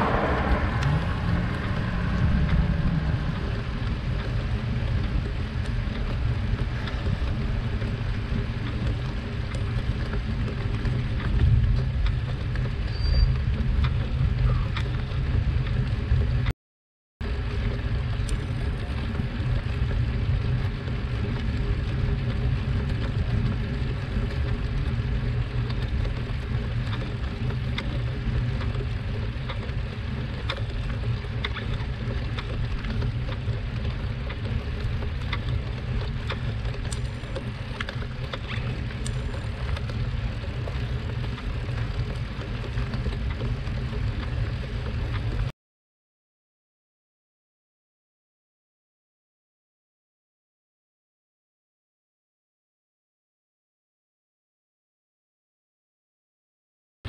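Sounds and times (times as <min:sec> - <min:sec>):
wind rumble on microphone: 0:00.0 - 0:16.5, 0:17.2 - 0:45.5.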